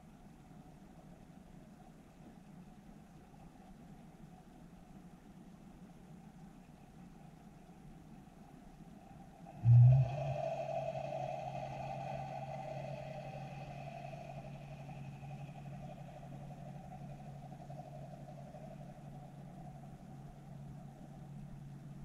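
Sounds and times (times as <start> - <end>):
boat engine hum underwater: 6.6 - 22.0
high-pitched whine: 8.9 - 22.0.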